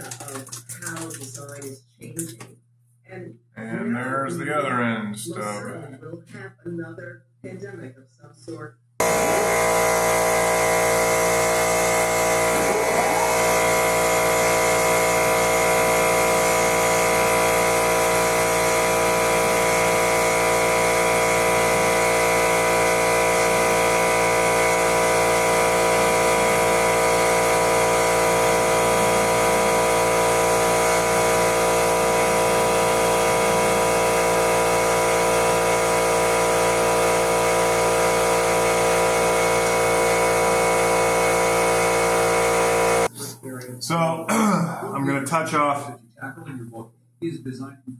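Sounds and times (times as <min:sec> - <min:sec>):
metal lathe humming: 0:09.0 - 0:43.3.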